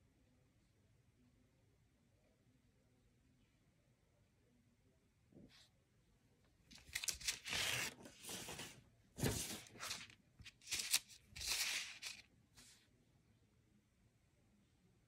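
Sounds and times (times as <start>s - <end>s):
paper rustling and crinkling: 6.7s - 12.8s.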